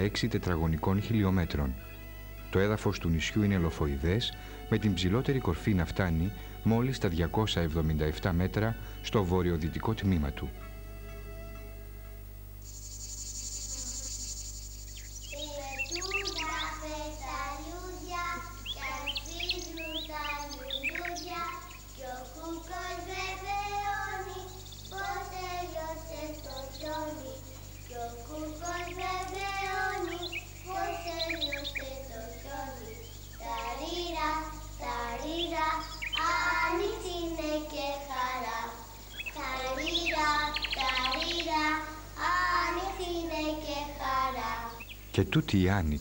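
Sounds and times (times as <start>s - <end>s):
child singing: 2.6s - 10.5s, 15.2s - 44.9s.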